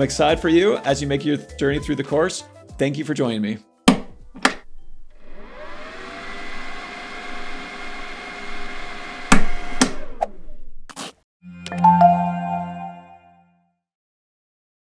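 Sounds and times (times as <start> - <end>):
chime: 11.7 - 13.3.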